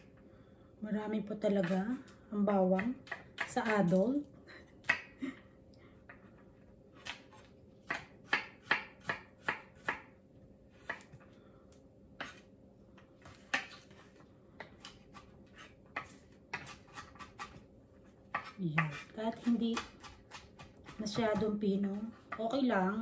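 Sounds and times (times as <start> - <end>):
knife chopping on wooden board: 2.7 - 3.9, 7.0 - 10.1, 10.8 - 11.2, 12.2 - 12.4, 13.2 - 14.0, 14.6 - 17.6, 18.3 - 22.6.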